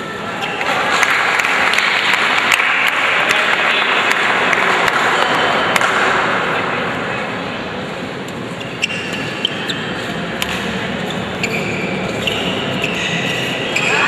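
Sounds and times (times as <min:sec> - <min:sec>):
crowd chatter: 0:00.0 - 0:14.0
spectators applauding: 0:00.6 - 0:05.3
shoe squeaks on court: 0:08.6 - 0:14.0.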